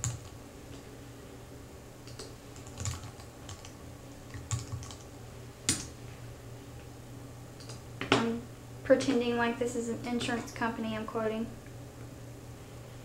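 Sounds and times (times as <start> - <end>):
keyboard typing: 0.0 - 0.4, 2.0 - 5.0, 7.6 - 7.8
low steady hum: 0.0 - 13.0.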